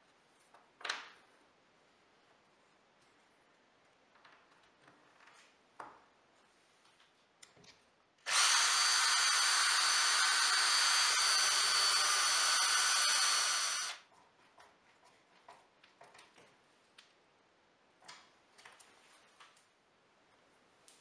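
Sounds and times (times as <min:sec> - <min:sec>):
cordless drill boring into wood: 0:08.3 - 0:14.0.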